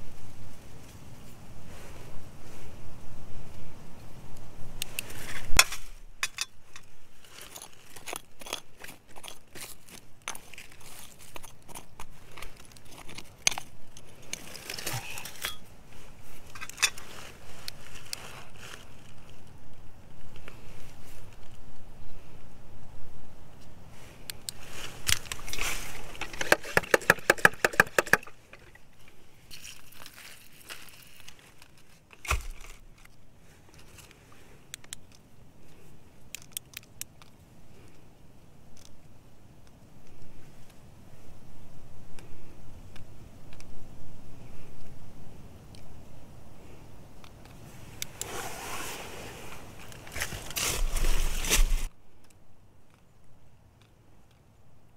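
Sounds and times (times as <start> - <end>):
hand brushing dirt rustle: 4.7 - 21.6, 23.9 - 34.6, 47.6 - 51.9
metal tool scraping gravelly soil: 4.8 - 19.2, 24.6 - 32.8, 47.7 - 51.9.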